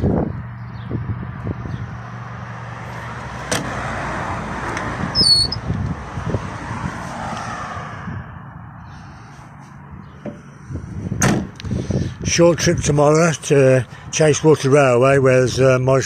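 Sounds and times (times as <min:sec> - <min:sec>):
car passing by: 0:02.0 - 0:05.2, 0:05.8 - 0:09.6
brief high squeak: 0:05.2 - 0:05.6.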